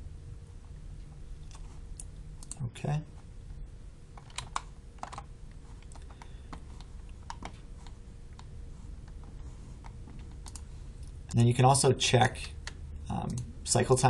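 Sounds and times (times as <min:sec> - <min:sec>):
low room hum: 0:00.0 - 0:14.0
mouse and keyboard clicks: 0:04.2 - 0:10.6.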